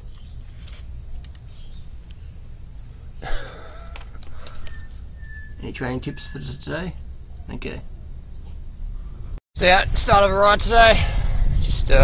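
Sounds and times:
wind rumbling on microphone: 0:08.8 - 0:12.0.

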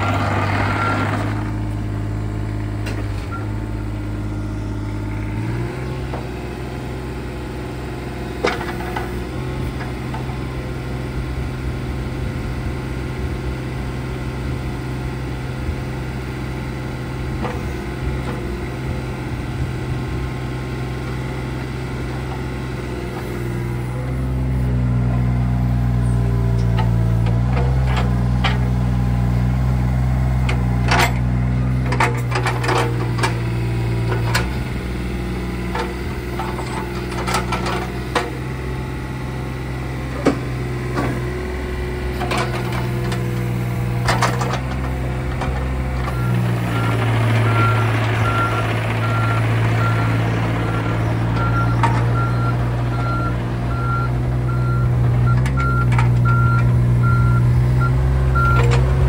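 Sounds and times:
excavator diesel engine running: 0:00.0 - 0:59.0
excavator arm clanking: 0:30.4 - 0:34.7, 0:35.6 - 0:38.5, 0:42.1 - 0:54.0, 0:54.6 - 0:57.4, 0:58.4 - 0:59.0.

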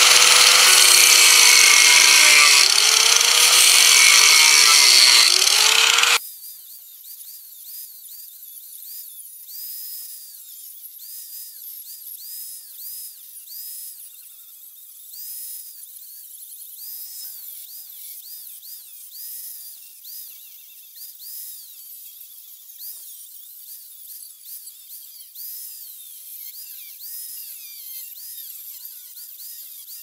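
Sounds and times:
angle grinder cutting steel: 0:00.0 - 0:06.2.

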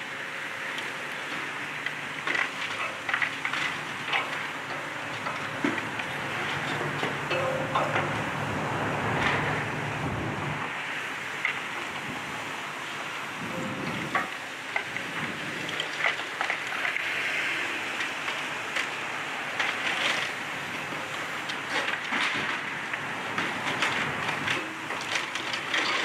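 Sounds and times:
excavator engine hum: 0:00.0 - 0:26.0
debris crackling and clattering: 0:00.8 - 0:08.2, 0:13.5 - 0:17.2, 0:18.0 - 0:26.0.

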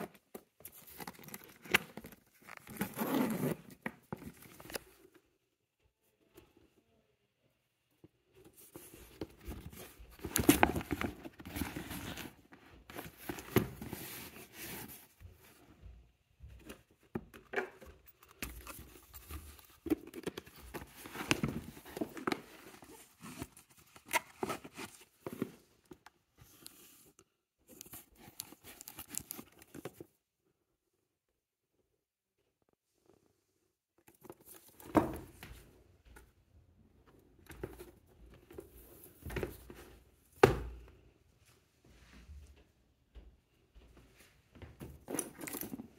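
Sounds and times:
handbag rustling and scraping: 0:00.1 - 0:04.8, 0:08.4 - 0:15.2, 0:45.0 - 0:45.9.

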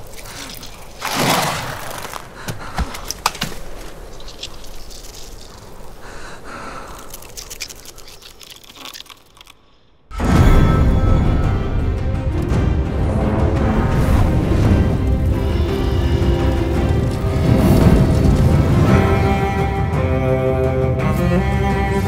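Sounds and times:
crunching and crackling clicks: 0:00.0 - 0:09.8.

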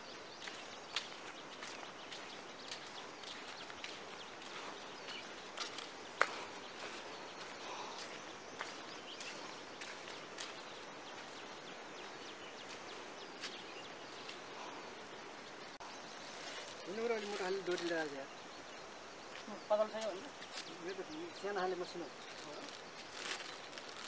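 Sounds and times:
sandal footsteps on pebbly sand: 0:00.0 - 0:14.5, 0:15.9 - 0:18.2, 0:22.2 - 0:24.0.

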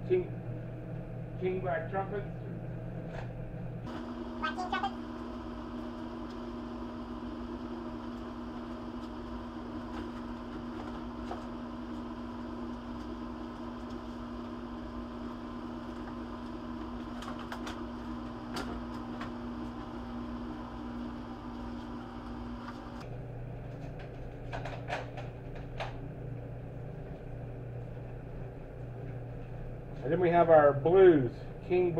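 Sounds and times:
machine humming: 0:00.0 - 0:31.9.

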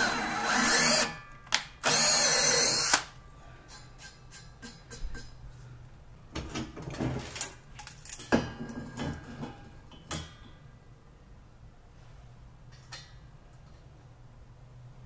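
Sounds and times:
metal clinks and rattles: 0:07.3 - 0:09.0.

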